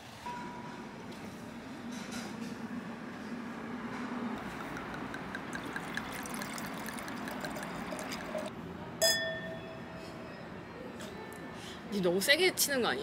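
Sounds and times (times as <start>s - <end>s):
wine trickling into glass: 4.4s - 8.5s.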